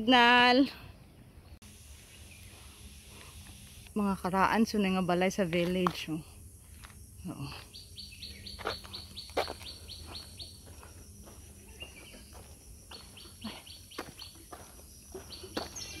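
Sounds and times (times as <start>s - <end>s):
songbird chirping: 0.1s - 3.3s, 7.3s - 16.0s.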